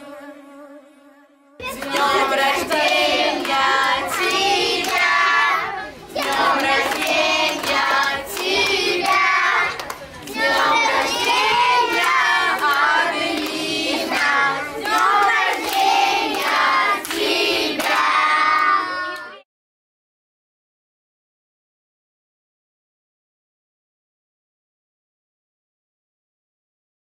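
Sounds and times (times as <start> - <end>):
children and women singing: 0.0 - 19.4
hand clapping: 1.6 - 5.4, 6.2 - 18.3.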